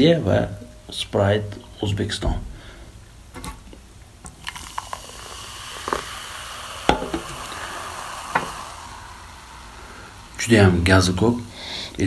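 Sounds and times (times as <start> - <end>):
soda fizzing in a glass: 4.2 - 11.5.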